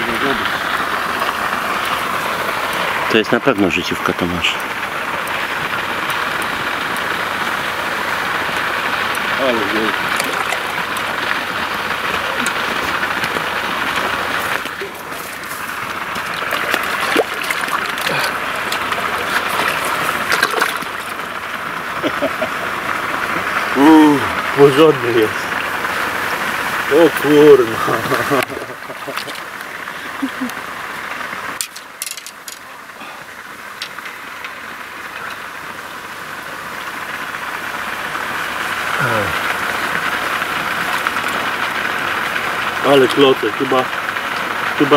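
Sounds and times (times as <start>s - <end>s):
fish splashing in shallow water: 4.8s - 23.7s, 25.4s - 38.8s
sharp knocks or splashes: 10.1s - 10.8s, 16.1s - 21.2s.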